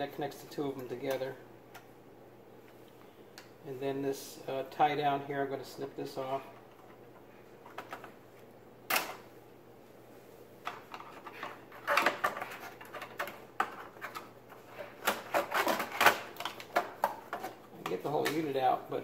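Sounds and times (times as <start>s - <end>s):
wires and plastic parts rattling: 10.6s - 18.7s.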